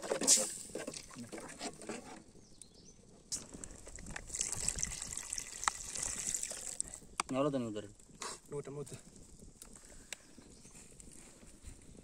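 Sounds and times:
curry bubbling: 3.3s - 7.2s.

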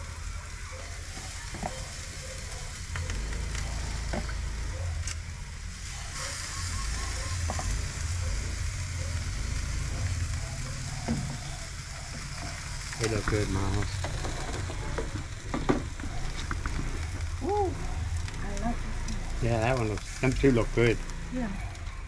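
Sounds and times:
chicken sizzling on a grill: 0.0s - 21.8s
low rumble: 2.8s - 21.9s.

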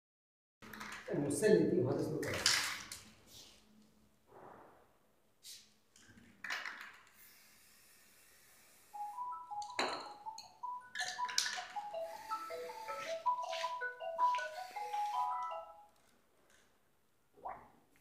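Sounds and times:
spray paint can hissing: 7.0s - 9.2s, 11.9s - 15.5s
light marimba music: 9.0s - 15.9s.

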